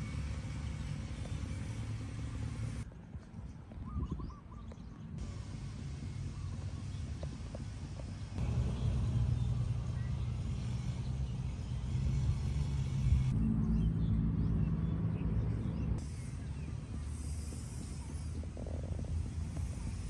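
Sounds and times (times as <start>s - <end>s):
low steady rumble: 5.1s - 20.0s.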